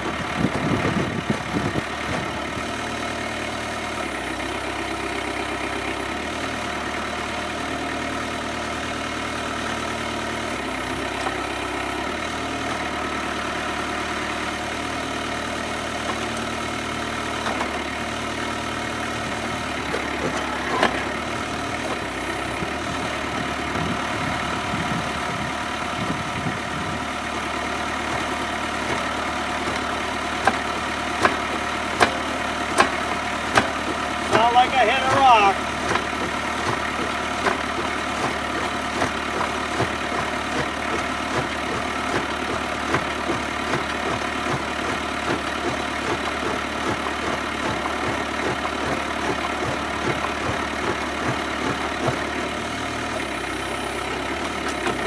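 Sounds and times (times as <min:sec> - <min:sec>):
auger boring into ground: 0:00.0 - 0:55.0
diesel tractor engine under load: 0:00.0 - 0:55.0
auger hitting rock knocks: 0:30.4 - 0:30.6, 0:32.0 - 0:52.2.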